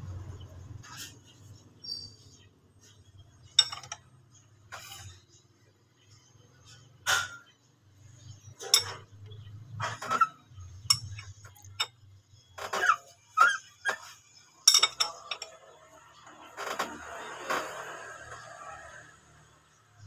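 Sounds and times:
metal tools clinking on engine parts: 3.4s - 4.1s, 8.5s - 12.1s, 14.6s - 15.7s.

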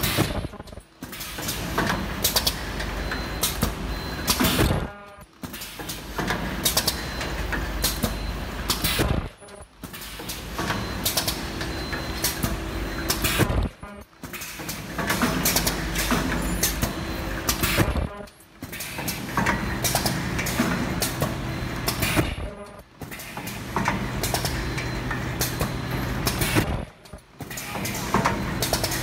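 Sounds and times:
machine clattering clicks: 14.2s - 17.9s, 18.6s - 22.2s, 23.0s - 29.0s.

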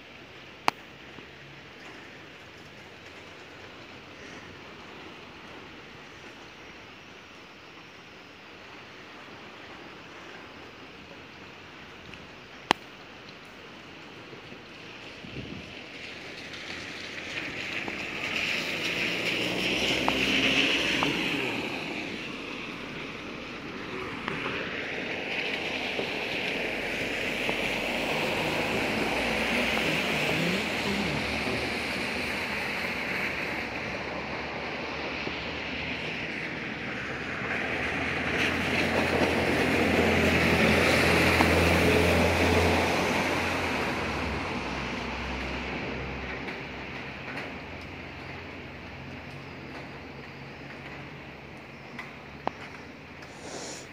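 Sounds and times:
car tyres swishing on wet road: 0.0s - 7.2s, 8.7s - 53.9s
rain hissing on street: 0.0s - 53.9s
van engine hum: 25.7s - 51.6s
car engine humming: 27.4s - 32.2s.

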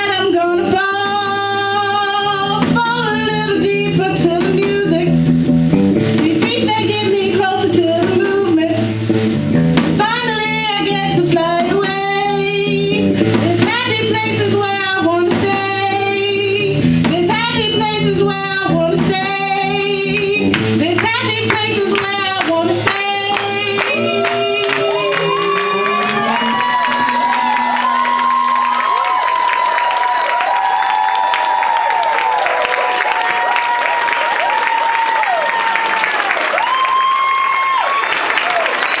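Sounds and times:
person singing: 0.0s - 5.2s, 6.2s - 9.0s, 10.0s - 29.1s
electric bass: 0.0s - 29.1s
drum kit: 0.0s - 39.0s.

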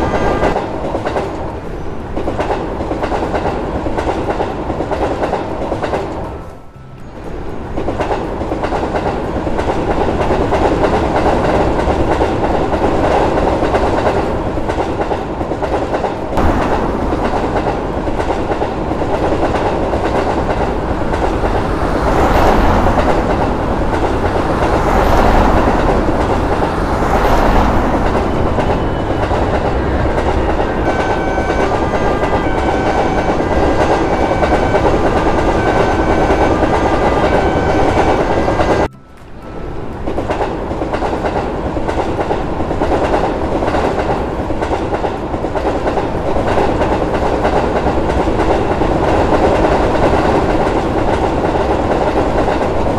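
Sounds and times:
train wheels clattering: 0.0s - 52.9s.

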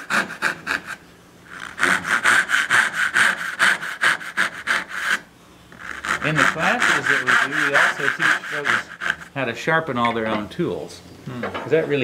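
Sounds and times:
hand saw cutting wood: 0.0s - 9.4s.

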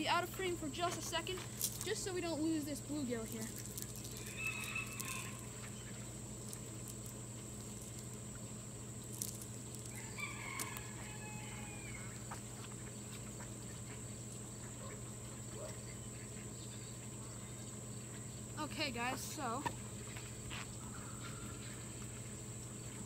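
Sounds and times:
low hum: 0.0s - 23.0s
steady high whine: 0.0s - 23.0s
faint rooster crowing: 4.1s - 5.8s, 9.8s - 12.4s.

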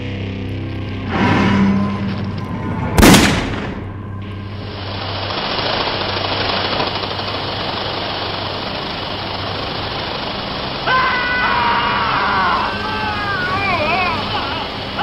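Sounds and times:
low hum: 0.0s - 15.0s
steady rushing noise: 2.2s - 15.0s
loud gunshot: 3.0s - 3.9s.

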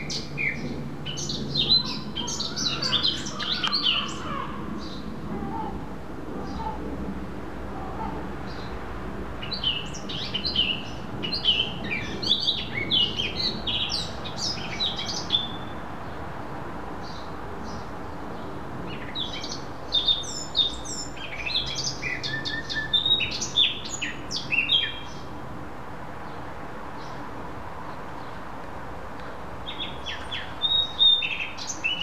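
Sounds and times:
songbird singing: 0.0s - 7.0s, 7.7s - 25.6s, 26.2s - 32.0s.

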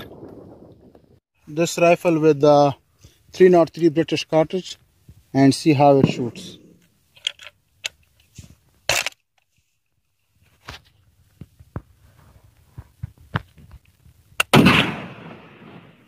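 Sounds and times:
rifle shot: 14.4s - 16.0s.

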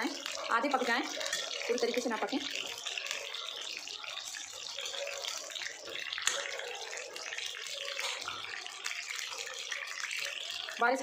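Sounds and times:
eggplants sizzling in hot oil: 0.0s - 11.0s.

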